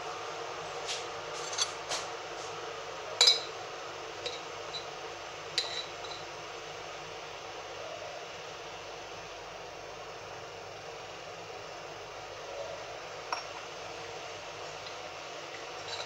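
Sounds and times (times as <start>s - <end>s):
spoon clinking on glass jar: 3.2s - 3.5s.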